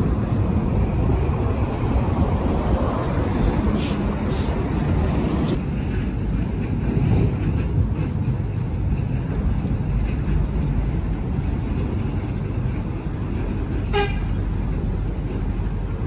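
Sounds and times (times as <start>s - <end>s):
road traffic hum: 0.0s - 16.0s
wind rumbling on microphone: 0.0s - 16.0s.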